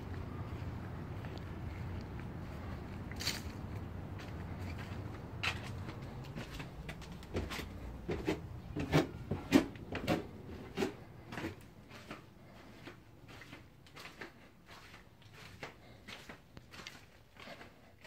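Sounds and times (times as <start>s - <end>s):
footsteps on stairs: 3.7s - 17.9s.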